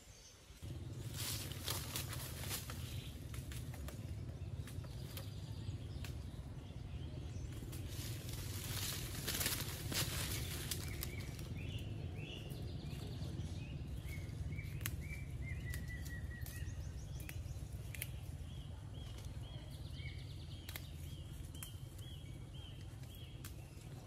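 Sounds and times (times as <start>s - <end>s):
birds chirping: 0.0s - 24.0s
low outdoor rumble: 0.5s - 24.0s
tea leaves snapping: 7.4s - 11.7s, 14.0s - 19.5s, 20.4s - 24.0s.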